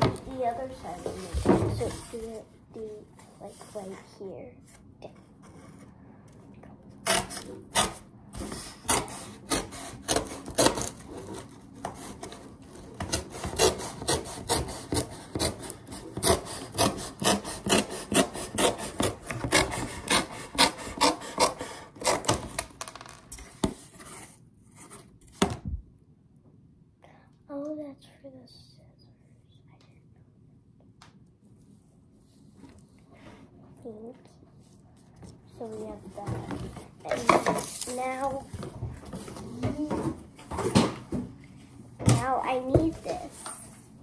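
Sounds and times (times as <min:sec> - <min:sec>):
rasping strokes on cardboard: 0:13.1 - 0:22.3.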